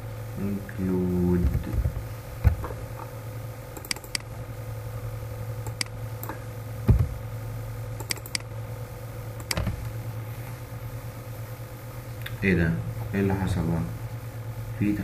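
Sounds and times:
steady low hum: 0:00.0 - 0:15.0
keyboard keystrokes: 0:03.8 - 0:04.2, 0:08.0 - 0:08.5
dull thump: 0:06.8 - 0:07.2.

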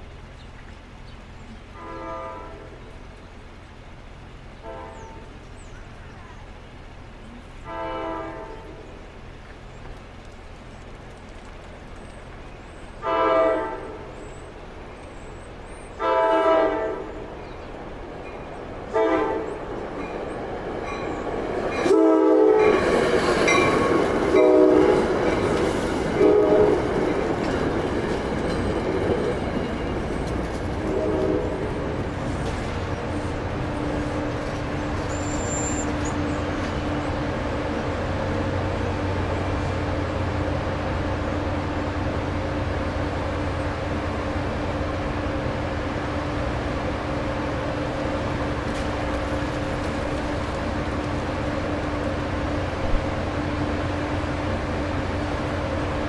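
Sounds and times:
train rumble and rail clatter: 0:00.0 - 0:56.0
train horn blasts: 0:01.7 - 0:02.9, 0:04.6 - 0:05.4, 0:07.6 - 0:08.9, 0:13.0 - 0:14.2, 0:16.0 - 0:17.3, 0:18.9 - 0:19.6, 0:21.8 - 0:22.9, 0:24.3 - 0:25.3, 0:26.1 - 0:27.0, 0:30.8 - 0:31.9.

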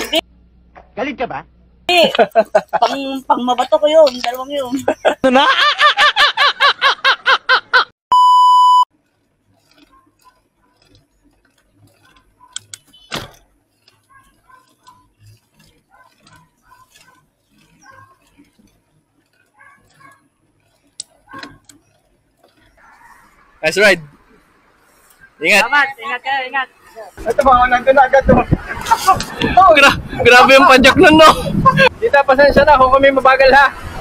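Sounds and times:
man laughing: 0:01.9 - 0:03.0, 0:04.7 - 0:07.9, 0:28.1 - 0:32.0
short electronic beep: 0:08.1 - 0:08.9.

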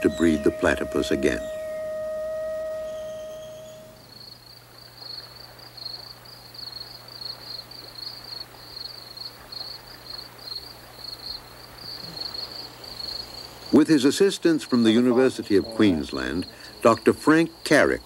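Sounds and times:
held musical tone: 0:00.0 - 0:04.2
faint low hum: 0:00.0 - 0:09.5
insects trilling: 0:00.0 - 0:18.0.

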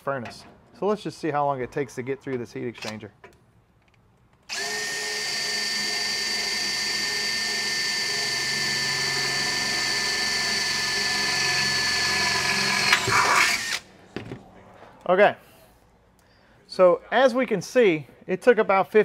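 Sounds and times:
cordless drill whining: 0:04.5 - 0:13.8
drill rattling: 0:04.5 - 0:13.8.

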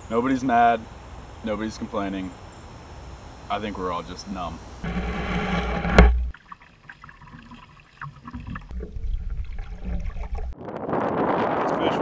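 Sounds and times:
sharp knock: 0:04.8 - 0:06.3
paddle dipping through water: 0:04.8 - 0:10.6
water trickling along hull: 0:06.2 - 0:10.6
wind rumbling on microphone: 0:08.7 - 0:12.0.

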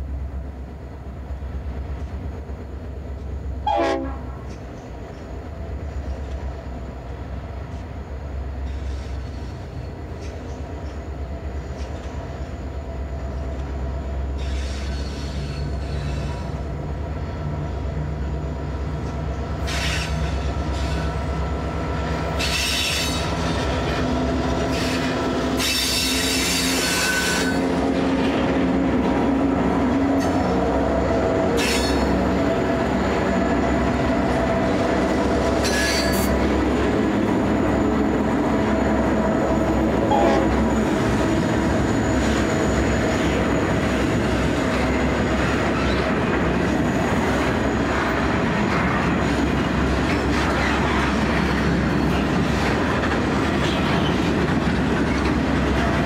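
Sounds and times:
diesel locomotive engines rumbling: 0:00.0 - 0:56.0
train wheel squeal: 0:08.5 - 0:16.7, 0:18.4 - 0:21.5, 0:22.1 - 0:24.0, 0:24.6 - 0:27.8, 0:31.5 - 0:32.4, 0:35.3 - 0:36.5, 0:37.5 - 0:48.1, 0:48.8 - 0:52.7.

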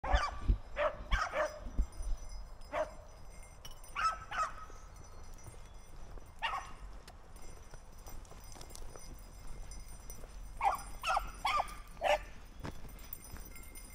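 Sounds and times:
hounds baying: 0:00.0 - 0:01.7, 0:02.7 - 0:03.2, 0:03.9 - 0:04.8, 0:06.4 - 0:07.0, 0:10.2 - 0:13.1.

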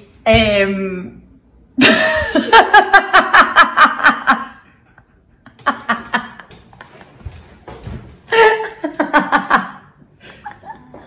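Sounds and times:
woman laughing: 0:01.8 - 0:04.6, 0:08.3 - 0:11.0.

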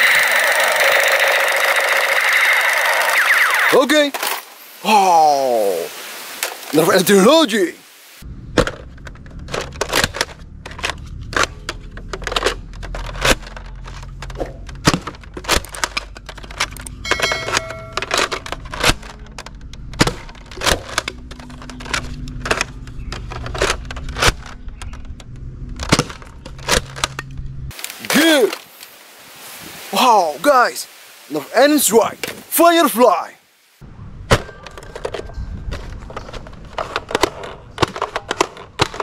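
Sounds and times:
toy blaster pumping and firing: 0:00.0 - 0:03.8
brief ringing tone: 0:17.0 - 0:18.1.

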